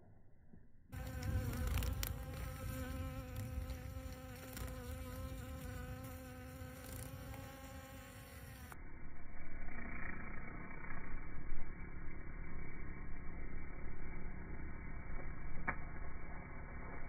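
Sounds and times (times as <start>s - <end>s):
bees humming: 1.0s - 8.8s
moth wingbeats whirring: 1.0s - 8.8s.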